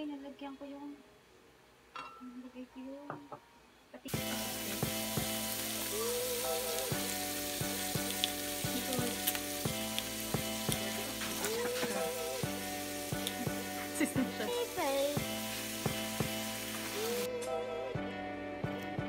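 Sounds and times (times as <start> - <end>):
octopus sizzling in oil: 4.1 - 17.3
background music with beat: 4.2 - 19.0.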